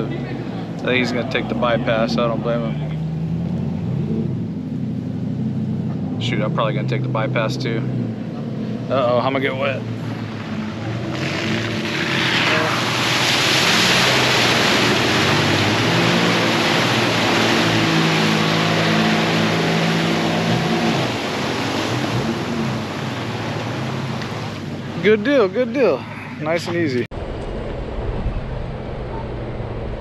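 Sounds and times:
engine pulling hard: 0.0s - 30.0s
tyres splashing through mud: 9.7s - 26.9s.

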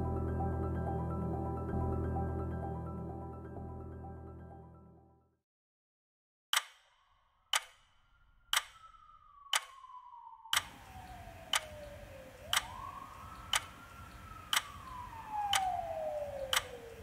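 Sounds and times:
clock ticking: 7.5s - 7.8s, 8.5s - 8.8s, 10.6s - 10.8s, 12.5s - 12.9s, 13.5s - 13.8s
low background noise: 10.6s - 17.0s.

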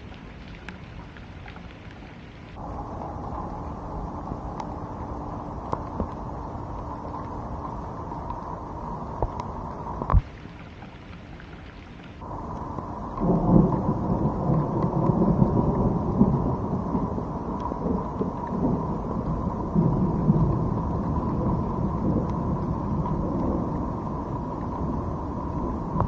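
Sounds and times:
rain: 0.0s - 26.0s
thunder rumbling: 12.2s - 26.0s.

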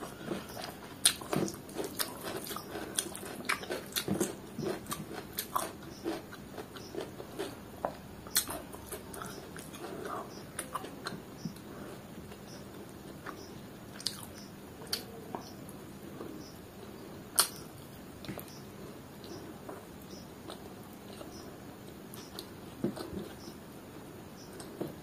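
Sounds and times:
wet chewing with clicks: 0.2s - 11.7s, 17.4s - 18.6s.

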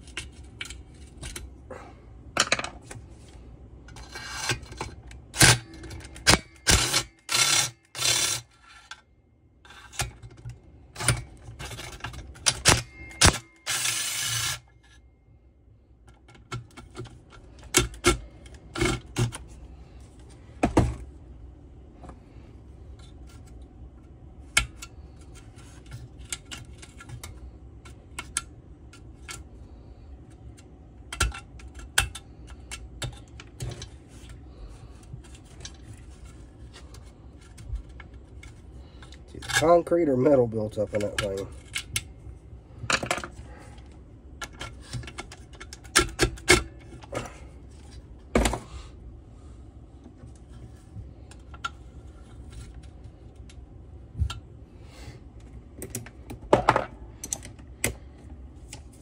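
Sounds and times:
metal parts clicking and clinking: 55.8s - 58.0s.

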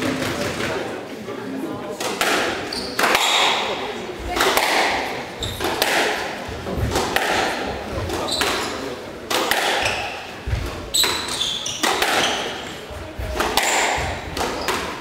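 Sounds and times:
shoes squeaking on wooden floor: 2.6s - 3.0s, 5.3s - 5.8s, 8.0s - 9.0s, 9.8s - 15.0s.

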